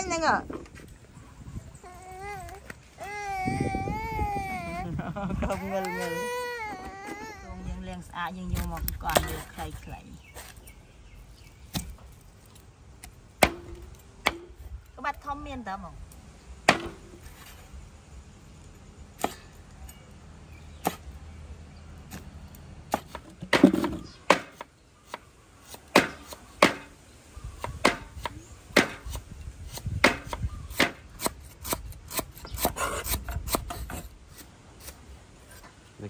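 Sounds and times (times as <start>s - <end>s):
knife chopping on wooden board: 25.9s - 26.9s, 27.6s - 29.2s, 30.0s - 31.8s.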